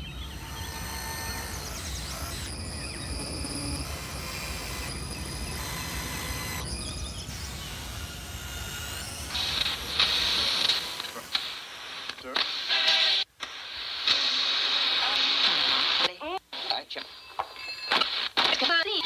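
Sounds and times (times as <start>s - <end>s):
high chirping and whistling: 0.0s - 9.3s.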